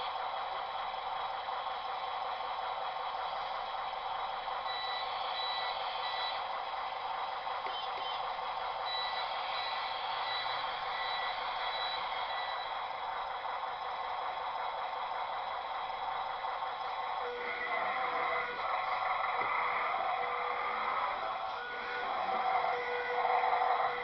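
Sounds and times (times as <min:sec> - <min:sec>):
mechanical hum: 0:00.0 - 0:24.0
reversing beeps: 0:04.7 - 0:06.5, 0:08.9 - 0:12.8.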